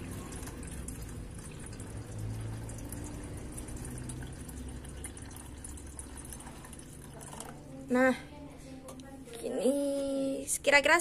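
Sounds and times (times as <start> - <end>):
water pouring into metal pot: 0.0 - 7.8.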